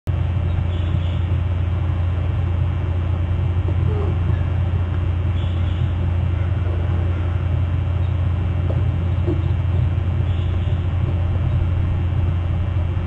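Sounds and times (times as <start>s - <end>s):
low rumble: 0.1s - 13.0s
faint high chirps: 5.3s - 8.2s, 9.2s - 11.8s.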